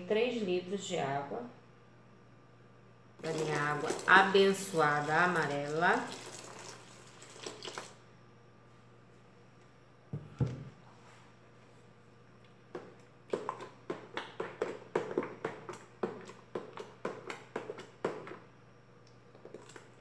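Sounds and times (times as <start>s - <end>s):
spoon splashing in bucket: 4.8s - 8.0s.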